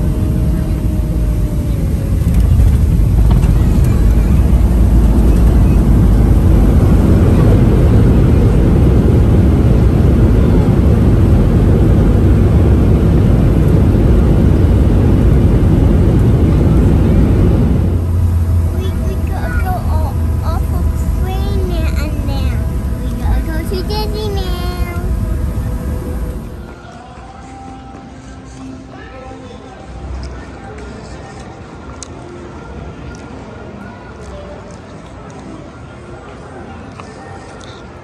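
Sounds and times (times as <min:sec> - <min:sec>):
vehicle engine and road noise: 0:00.0 - 0:28.5.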